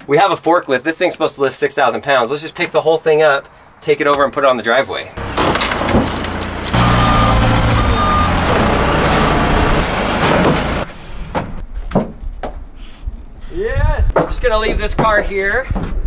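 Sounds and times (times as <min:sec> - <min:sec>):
forklift engine running hard: 0:05.2 - 0:10.9
short high beep: 0:06.8 - 0:09.6.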